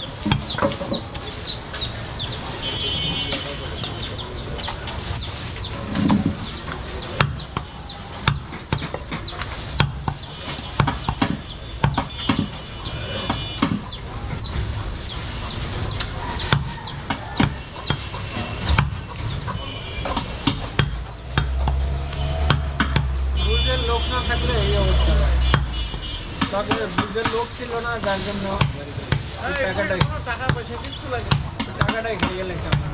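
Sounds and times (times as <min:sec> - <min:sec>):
bird chirping: 0:00.0 - 0:19.8.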